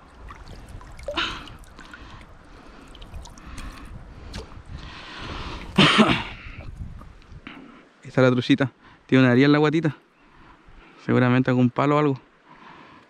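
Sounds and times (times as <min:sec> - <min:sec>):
river water splashing: 0:00.0 - 0:07.4.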